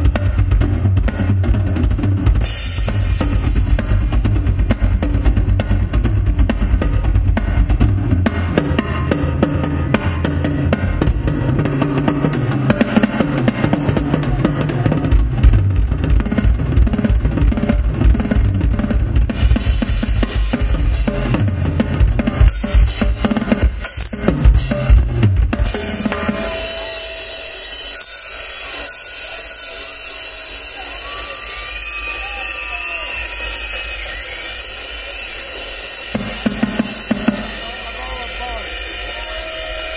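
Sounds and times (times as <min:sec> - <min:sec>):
drum kit solo: 0:00.0 - 0:39.9
cymbal crashes: 0:25.7 - 0:39.9.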